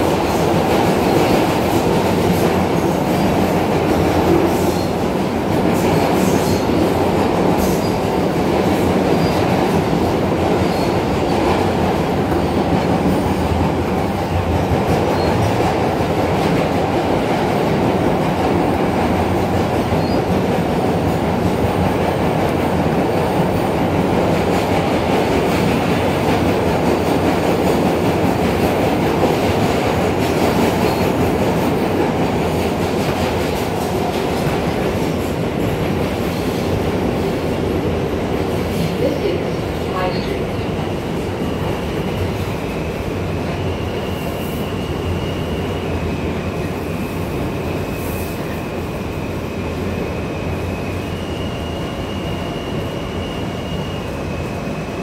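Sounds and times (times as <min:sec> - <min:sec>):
subway wheels rumbling on rail: 0:00.0 - 0:55.0.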